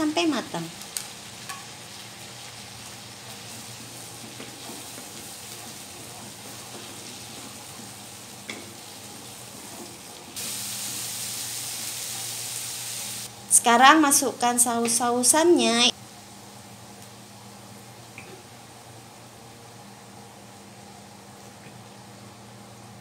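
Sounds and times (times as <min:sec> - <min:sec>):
vegetables sizzling in a wok: 0:00.0 - 0:23.0
wooden spatula stirring: 0:03.4 - 0:08.0.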